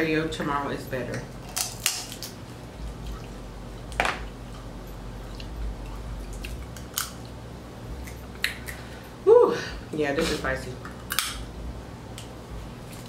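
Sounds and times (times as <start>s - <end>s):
wet mouth eating sounds: 5.2s - 7.4s.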